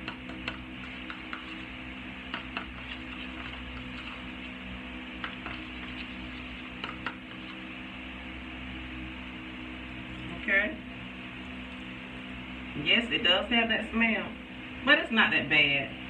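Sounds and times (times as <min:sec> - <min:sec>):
utensil tapping a bowl: 0:00.0 - 0:01.6, 0:02.3 - 0:04.2, 0:05.2 - 0:07.5.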